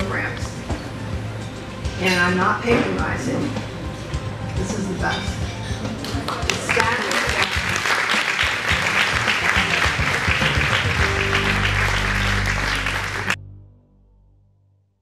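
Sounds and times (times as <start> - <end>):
audience applauding: 6.0 - 13.4
low sustained music chords: 8.6 - 14.6.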